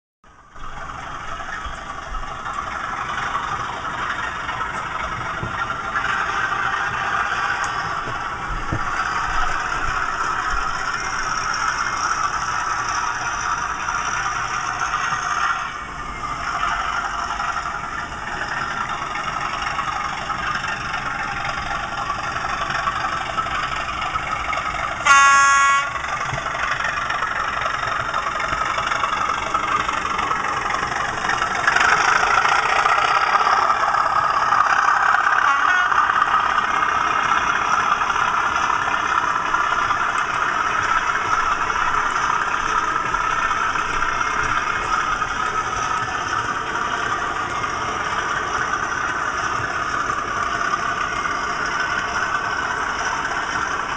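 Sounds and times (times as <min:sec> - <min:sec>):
model locomotive diesel engine sound: 0:00.2 - 0:53.9
short horn blast: 0:25.0 - 0:26.0, 0:35.4 - 0:36.1.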